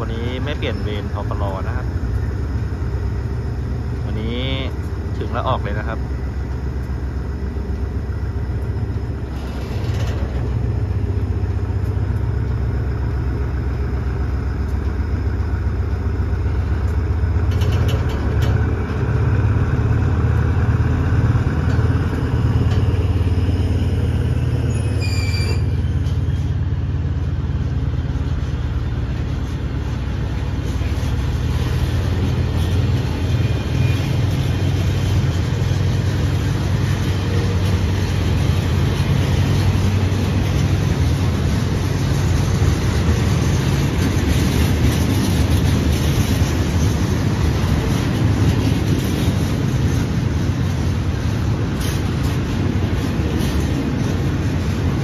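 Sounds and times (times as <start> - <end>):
diesel locomotive rumble: 0.0 - 55.0
train wagons rolling on rails: 0.0 - 55.0
brief squeal: 24.5 - 26.5.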